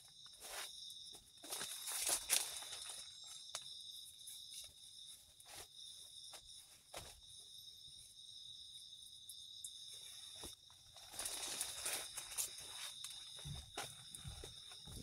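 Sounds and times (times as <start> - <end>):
night insects chorus: 0.0 - 15.0.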